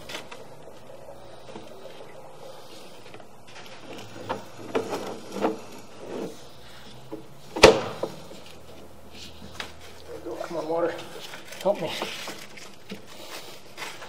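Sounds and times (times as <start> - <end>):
cable scraping and rubbing: 0.0 - 7.5.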